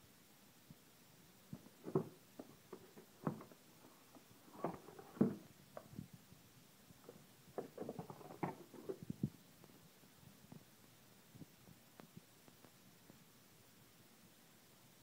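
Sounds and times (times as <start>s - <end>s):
knocks taps and rustles: 1.6s - 6.0s, 7.0s - 9.1s.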